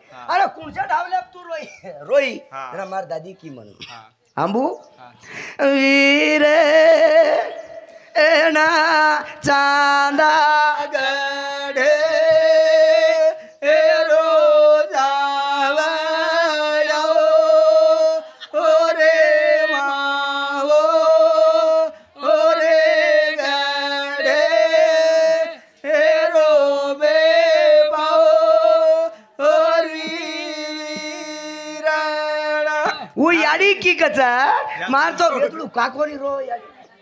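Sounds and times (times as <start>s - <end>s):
person singing devotional song: 5.3s - 33.3s.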